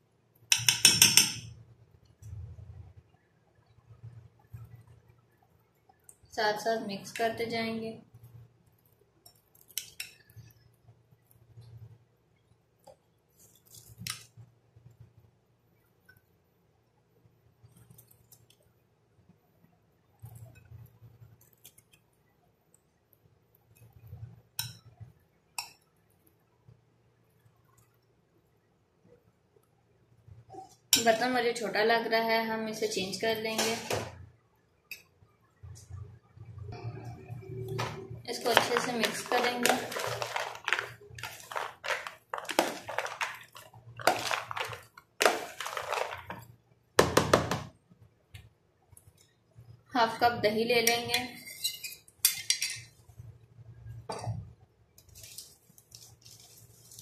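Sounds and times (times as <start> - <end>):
metal spoon stirring in glass bowl: 0.5 - 1.5, 37.8 - 46.4, 50.8 - 52.9.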